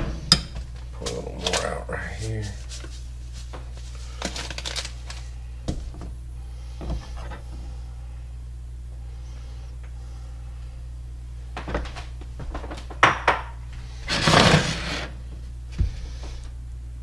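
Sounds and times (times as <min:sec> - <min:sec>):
steady low hum: 0:00.0 - 0:17.0
plate scraping across cooktop: 0:13.9 - 0:15.2.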